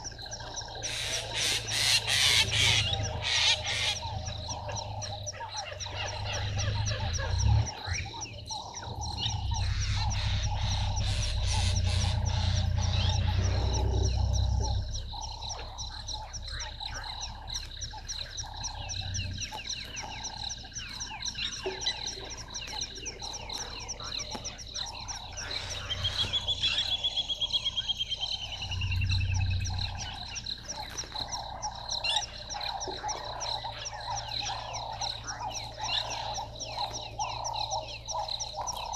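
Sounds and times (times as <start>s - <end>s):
frogs croaking chorus: 0.0s - 38.9s
low rumble: 2.5s - 21.6s, 22.2s - 32.8s.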